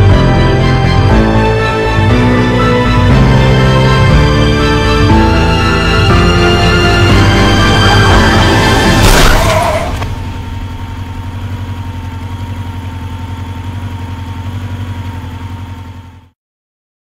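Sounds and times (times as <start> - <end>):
vehicle engine idling: 0.0 - 16.4
loud crash-like burst: 8.0 - 11.5.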